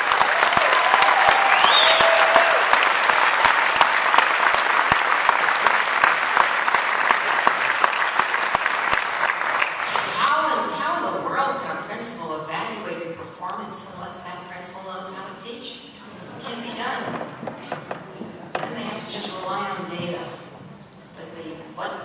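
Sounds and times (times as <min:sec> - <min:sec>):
audience clapping: 0:00.0 - 0:10.4
person whooping: 0:00.4 - 0:02.8.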